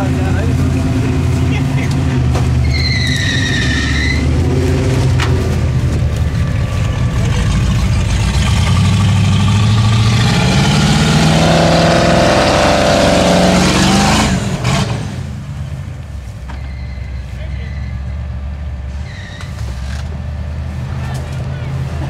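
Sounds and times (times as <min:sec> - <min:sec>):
truck engine revving under load: 0:00.0 - 0:22.0.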